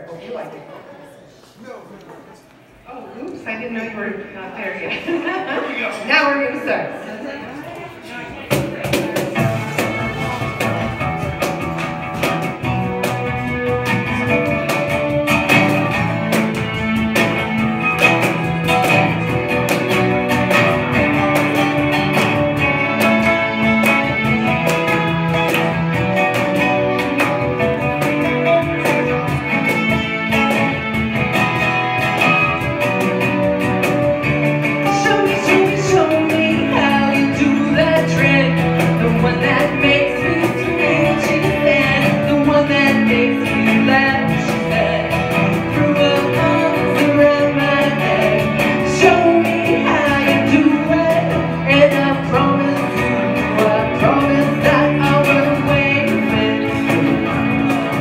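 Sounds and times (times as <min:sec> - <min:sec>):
guitar: 0:02.5 - 0:58.0
cajon beat: 0:07.7 - 0:58.0
keyboard: 0:08.3 - 0:58.0
woman singing: 0:34.8 - 0:57.7.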